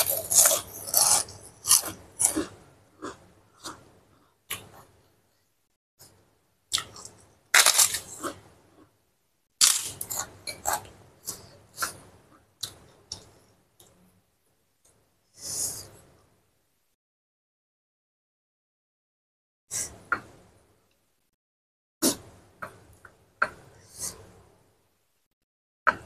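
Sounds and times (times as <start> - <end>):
crackers crunching: 0.0 - 3.2, 6.7 - 8.4, 9.6 - 11.4.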